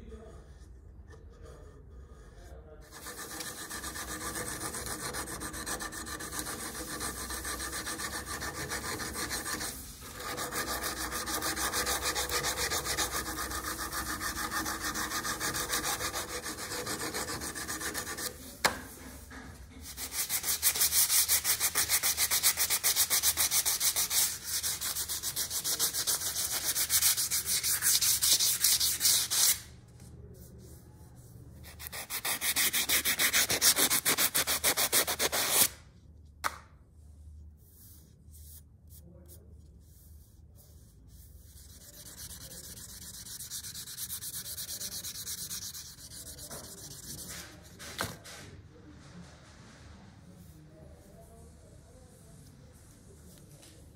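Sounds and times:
sanding steel: 2.9 - 18.4, 41.5 - 47.7.

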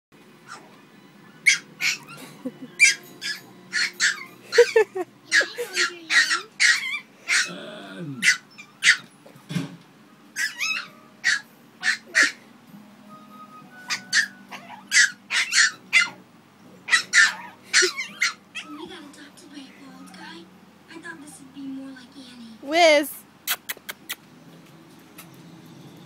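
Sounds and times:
small dog yapping: 1.4 - 2.2, 2.8 - 7.6, 8.2 - 9.1, 10.4 - 12.4, 13.9 - 16.2, 16.9 - 18.8.

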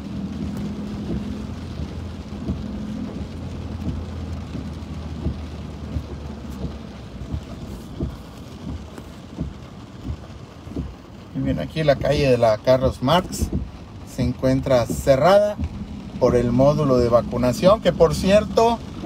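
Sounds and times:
car driving on wet road: 0.0 - 19.0
heavy rain on car roof: 0.0 - 19.0.

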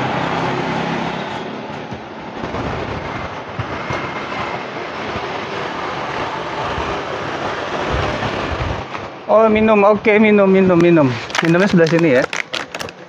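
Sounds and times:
passing vehicle traffic: 0.0 - 9.6.

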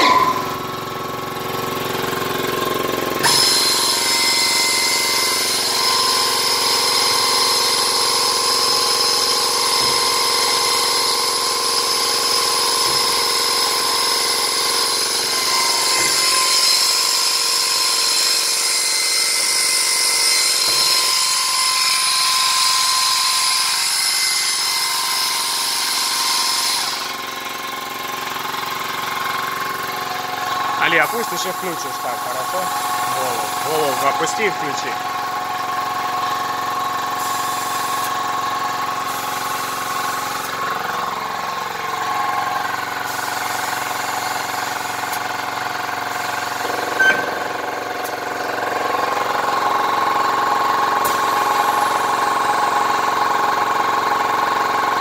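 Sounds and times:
boring machine humming: 27.4 - 43.1, 45.9 - 49.7.

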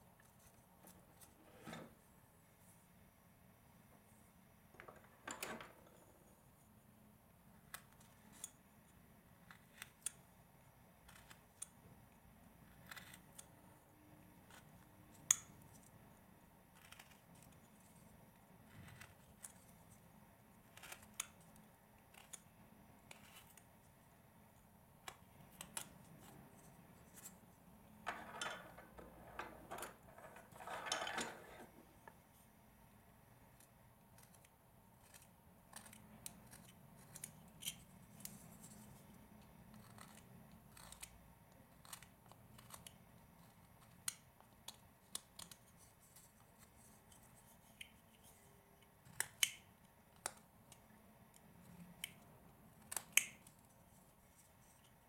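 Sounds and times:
knife shaving wood: 12.7 - 13.5, 16.8 - 17.8, 20.7 - 21.4, 34.2 - 37.4, 39.7 - 41.2.

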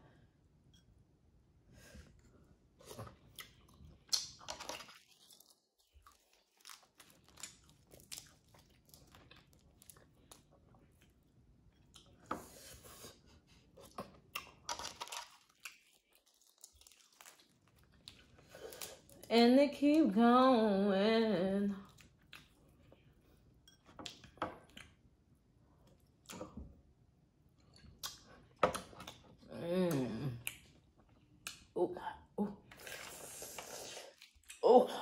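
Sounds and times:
close chewing: 2.8 - 12.3, 13.6 - 19.2.

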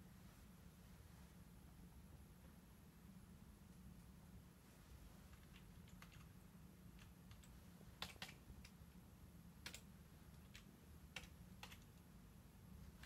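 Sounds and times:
low steady hum: 0.0 - 13.0
computer keyboard clicks: 5.4 - 6.3, 7.0 - 8.8, 9.6 - 12.0.

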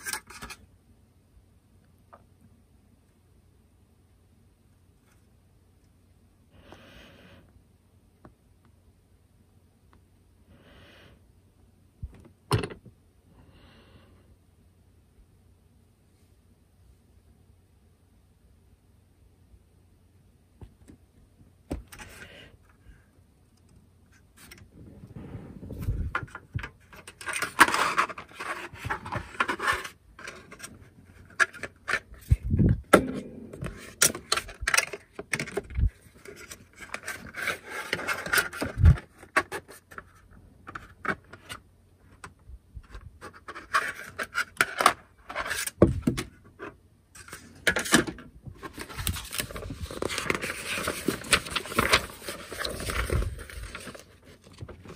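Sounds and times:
paper rustling and crinkling: 25.6 - 32.4, 33.6 - 41.6, 47.2 - 54.9.

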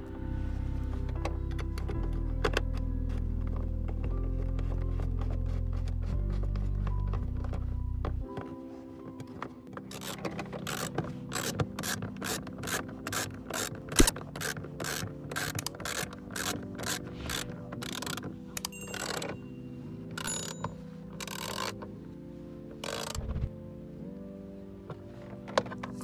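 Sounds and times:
socket ratchet clicking: 9.9 - 19.4, 20.2 - 21.8, 22.8 - 23.2.

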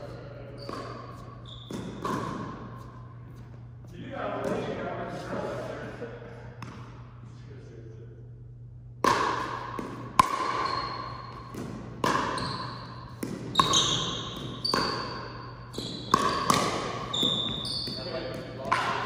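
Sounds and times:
short high shoe squeaks: 0.5 - 2.0, 10.5 - 11.5, 12.3 - 18.3
echoing ball strikes: 0.6 - 2.8, 8.9 - 19.0.

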